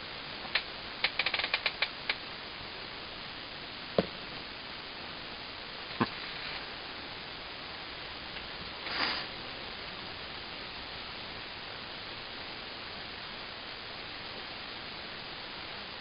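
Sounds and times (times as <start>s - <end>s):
sharp clicks: 0.5s - 2.2s.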